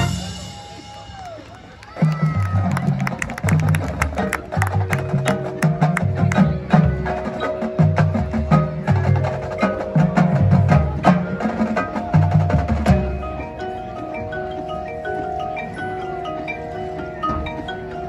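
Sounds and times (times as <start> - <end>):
marching band playing: 0.0 - 18.0
low drum pattern: 2.1 - 13.9.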